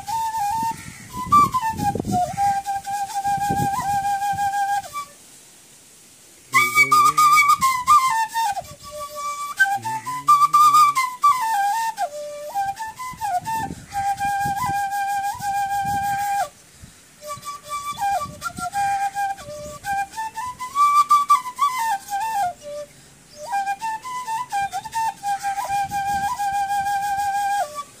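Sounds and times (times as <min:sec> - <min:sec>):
flute melody: 0:00.0 - 0:05.2, 0:06.5 - 0:16.5, 0:17.2 - 0:28.0.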